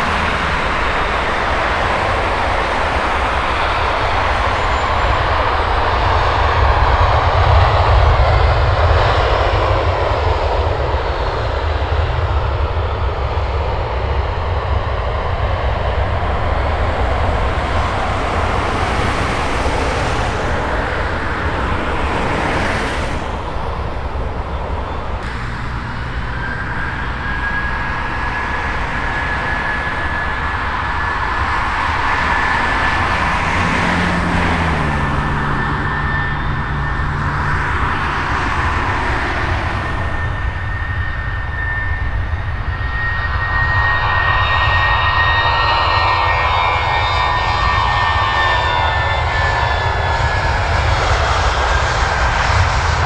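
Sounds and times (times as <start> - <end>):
deep rumble: 0.0 - 42.8
high jet engine whine: 0.0 - 53.0
jet engines running: 0.0 - 53.0.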